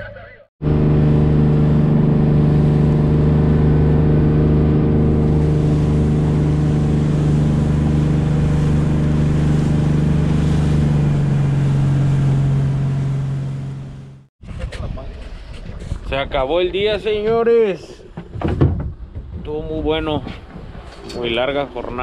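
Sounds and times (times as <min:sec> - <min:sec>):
boat engine running: 0:00.6 - 0:17.3.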